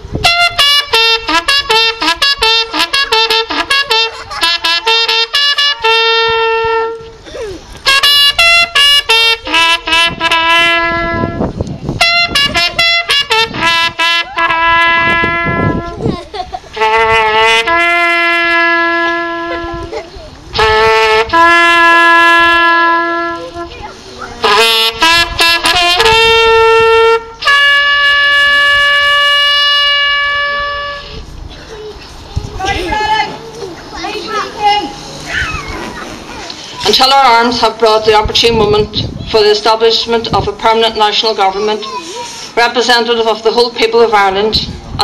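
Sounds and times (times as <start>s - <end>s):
wind instrument playing slow air: 16.7s - 31.5s.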